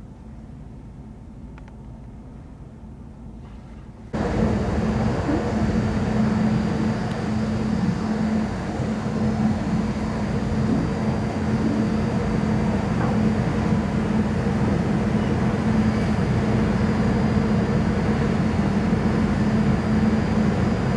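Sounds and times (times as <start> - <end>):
ship machinery rumble: 2.2 - 20.9.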